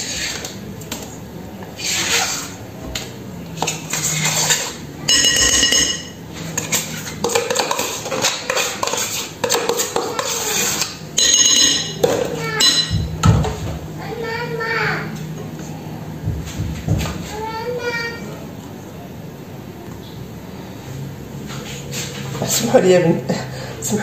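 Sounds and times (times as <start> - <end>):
spoon scraping plastic tub: 3.6 - 11.0
spoon clinking against glass bowl: 5.1 - 6.2, 11.2 - 12.0, 12.6 - 13.1.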